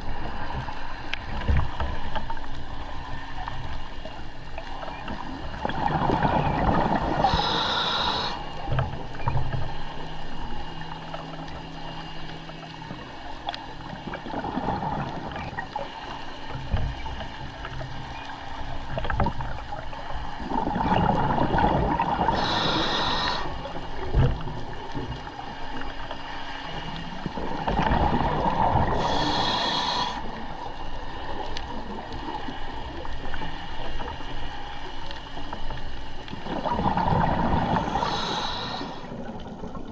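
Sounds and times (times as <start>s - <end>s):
exhaled bubbles rushing: 5.0s - 7.4s, 14.0s - 15.8s, 20.4s - 22.7s, 27.3s - 29.1s, 36.3s - 39.9s
regulator hissing inhalations: 7.2s - 8.6s, 22.3s - 23.6s, 28.9s - 30.4s, 37.8s - 39.2s.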